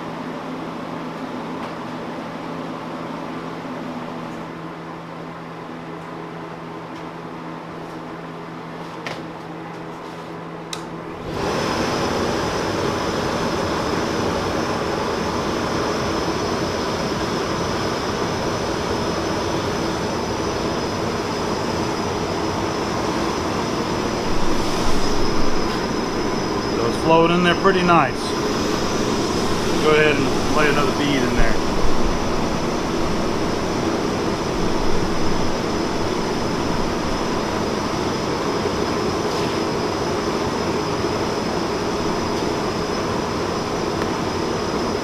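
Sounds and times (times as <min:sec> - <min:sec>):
fume extractor blower running: 0:00.0 - 0:45.0
low steady hum: 0:22.7 - 0:38.2.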